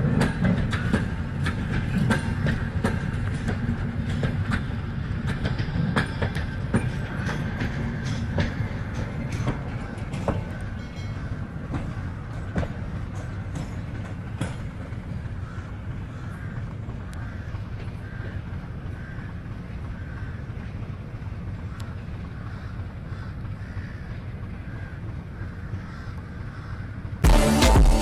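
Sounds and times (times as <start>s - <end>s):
train wheels clicking over rail joints: 0.0s - 27.2s
train rumbling past: 0.0s - 28.0s.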